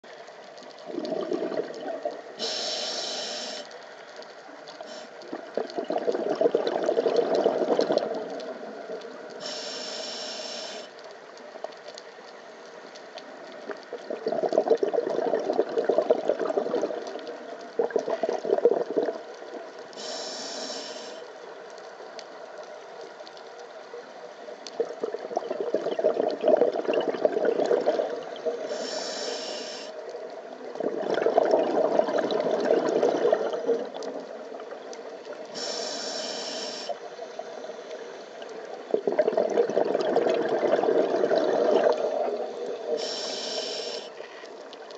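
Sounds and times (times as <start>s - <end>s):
rush of exhaled bubbles: 0.8s - 2.4s, 5.2s - 8.4s, 13.9s - 19.3s, 24.8s - 28.6s, 30.6s - 34.3s, 38.7s - 43.1s
regulator inhale hiss: 2.3s - 3.8s, 4.8s - 5.4s, 9.3s - 11.0s, 20.0s - 21.4s, 28.6s - 30.1s, 35.5s - 38.4s, 42.4s - 44.5s.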